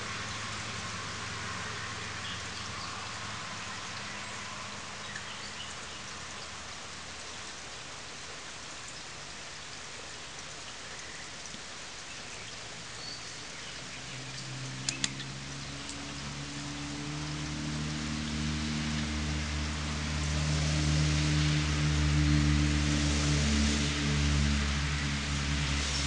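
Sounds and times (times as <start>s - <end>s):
rain falling on leaves: 0.0s - 26.0s
sharp clicks: 14.8s - 15.2s.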